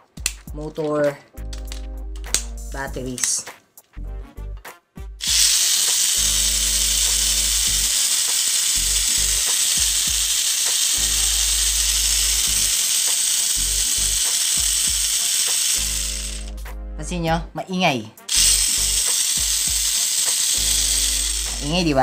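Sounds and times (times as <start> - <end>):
high-pitched toy motor gear noise: 5.2 - 16.6, 18.2 - 22.0.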